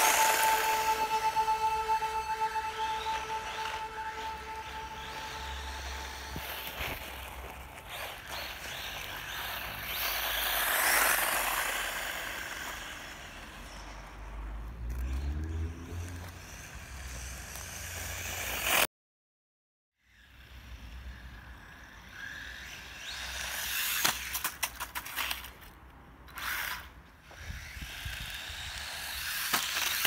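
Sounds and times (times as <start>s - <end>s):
electric motor whine: 0.0s - 13.8s.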